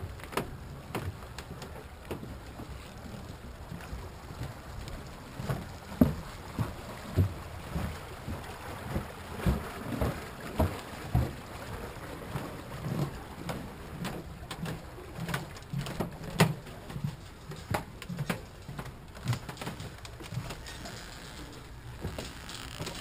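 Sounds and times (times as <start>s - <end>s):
footsteps on snowy wooden boards: 5.4s - 7.4s, 17.1s - 23.0s.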